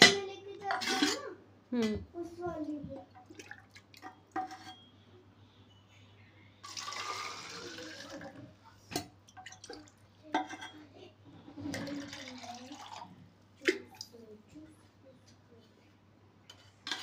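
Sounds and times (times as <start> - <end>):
water pouring into a bottle: 6.6 - 8.4, 11.8 - 13.2.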